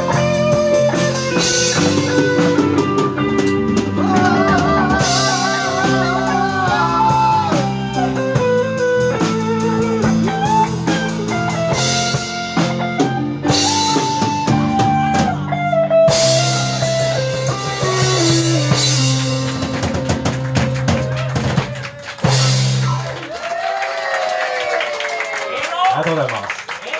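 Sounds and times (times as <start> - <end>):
sliding guitar notes: 0.0 - 21.2
live band playing: 0.0 - 23.5.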